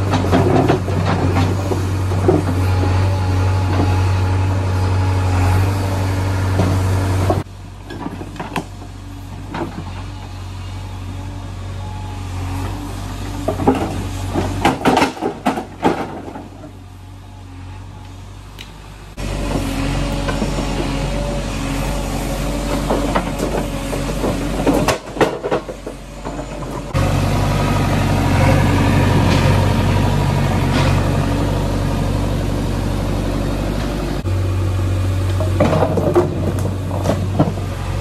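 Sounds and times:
sharp clanks and knocks: 0.0s - 2.6s, 13.4s - 16.8s, 22.6s - 27.0s, 35.3s - 38.0s
diesel machinery engine running: 0.0s - 38.0s.

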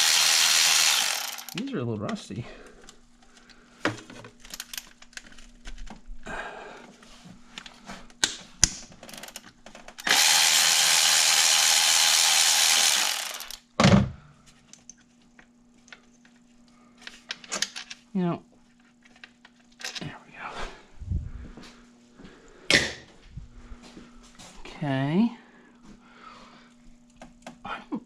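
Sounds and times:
ratchet wrench clicking: 0.0s - 1.6s, 10.0s - 13.6s.

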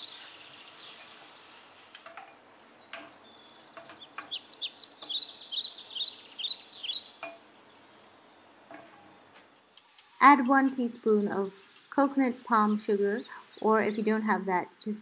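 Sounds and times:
bird chirping falling notes: 0.0s - 9.7s.

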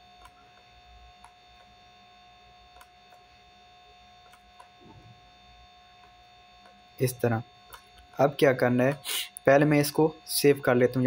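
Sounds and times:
computer mouse clicks: 0.0s - 1.8s, 2.7s - 3.3s, 4.2s - 5.1s
steady electrical hum: 0.0s - 11.0s.

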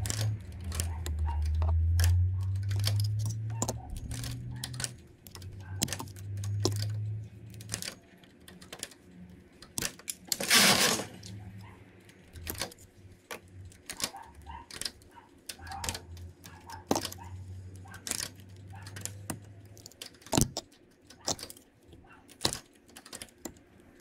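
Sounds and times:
metal knitting needles clicking: 0.0s - 24.0s
metal tool scrape: 10.4s - 11.2s.

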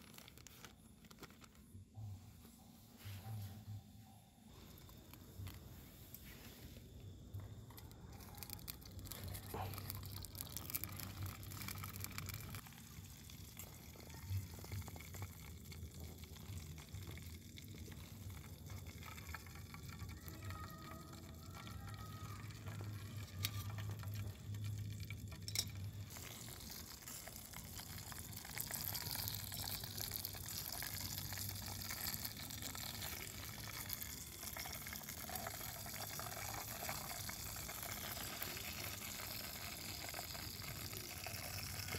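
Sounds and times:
hot oil sizzling and bubbling: 7.1s - 41.9s.

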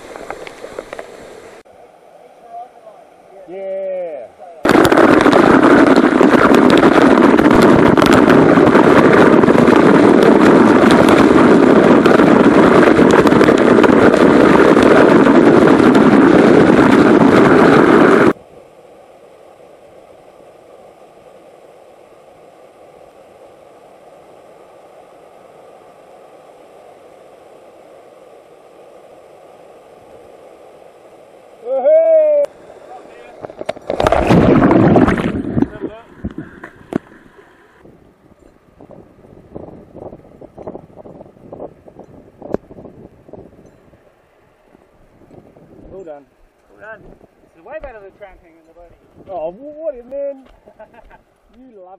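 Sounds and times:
waterfall pounding on lens: 4.6s - 18.4s
faint rush of falling water: 18.3s - 34.3s.

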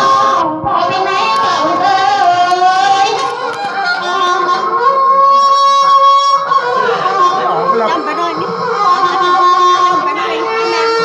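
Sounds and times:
music: 0.0s - 11.0s.

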